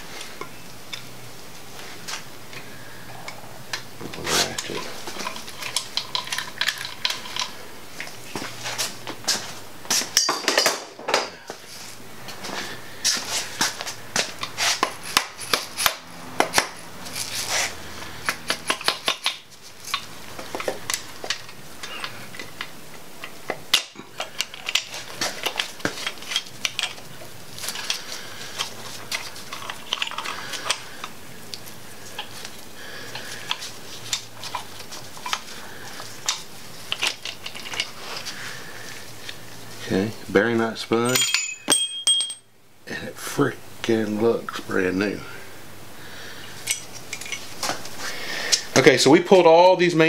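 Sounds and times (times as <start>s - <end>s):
metal clinks and clatter: 29.1s - 30.8s, 41.0s - 42.5s.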